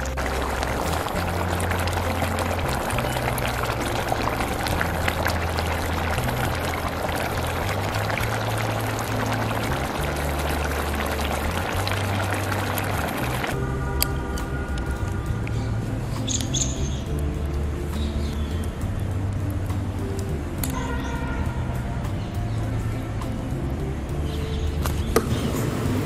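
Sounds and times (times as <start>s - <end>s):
curry bubbling and sizzling: 0.0s - 13.6s
background music with bass: 0.0s - 26.0s.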